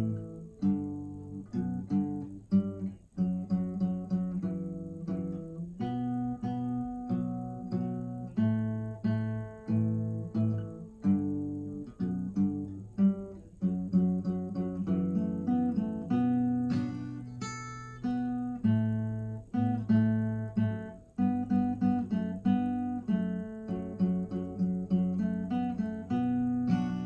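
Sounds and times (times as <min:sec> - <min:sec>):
acoustic guitar picked and strummed: 0:00.0 - 0:27.0.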